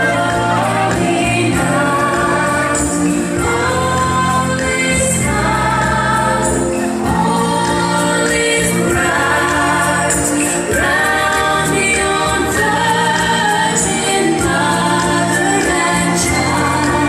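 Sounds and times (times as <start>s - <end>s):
choir singing held notes: 0.0s - 17.0s
musical accompaniment: 0.0s - 17.0s.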